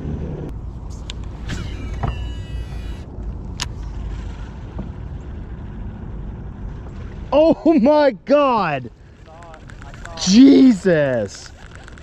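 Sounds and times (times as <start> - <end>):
fishing reel spool whirring: 1.0 - 3.8.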